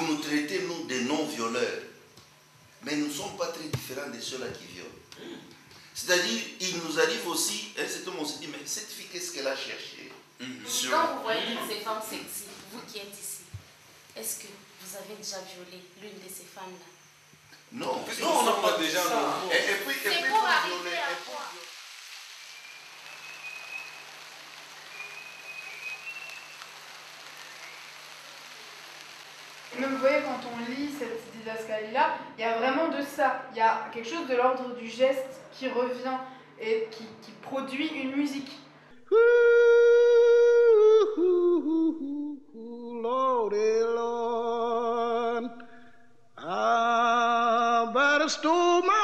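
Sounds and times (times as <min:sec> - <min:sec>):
steady rain: 0:17.8 - 0:31.8
thin high whistling tones: 0:22.3 - 0:28.7
people singing wordlessly: 0:41.0 - 0:45.8, 0:46.4 - 0:49.0.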